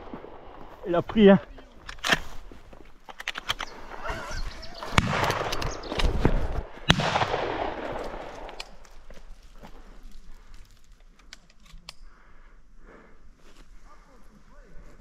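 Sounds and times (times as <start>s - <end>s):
shotgun shots echoing: 4.8s - 8.6s.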